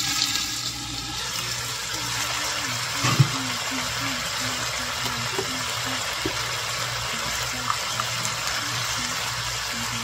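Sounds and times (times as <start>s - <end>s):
tap running: 2.9s - 3.8s, 4.9s - 6.7s.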